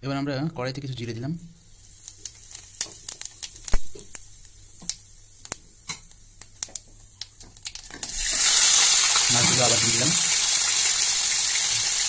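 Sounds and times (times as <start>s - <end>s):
seeds spluttering in hot oil: 1.6s - 12.0s.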